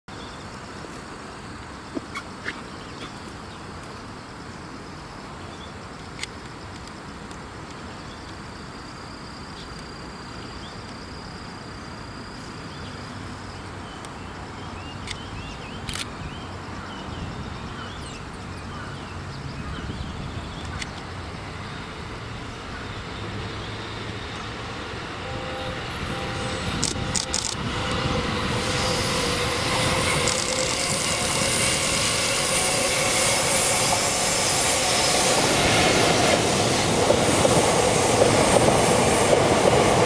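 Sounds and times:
distant trains rumbling: 0.6s - 40.0s
sharp clicks: 26.8s - 27.6s.

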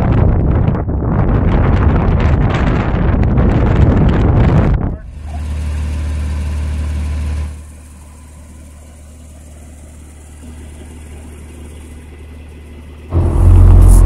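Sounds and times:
car engine running: 4.8s - 14.0s.

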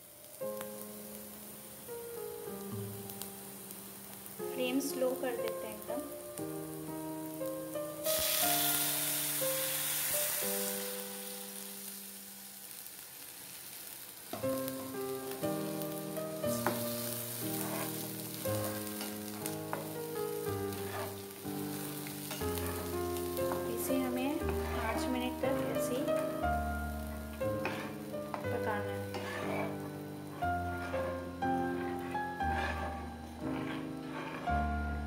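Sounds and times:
milk sizzling in hot pan: 0.0s - 35.0s
instrumental background music: 0.4s - 12.0s, 14.4s - 35.0s
steel spatula stirring and scraping: 16.2s - 34.7s.

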